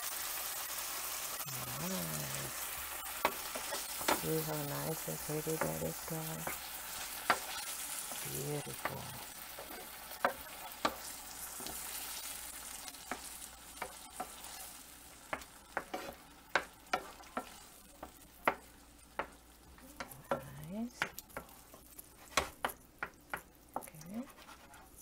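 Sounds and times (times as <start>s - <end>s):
sauce sizzling: 0.0s - 25.0s
wooden spoon scraping a pan: 1.7s - 25.0s.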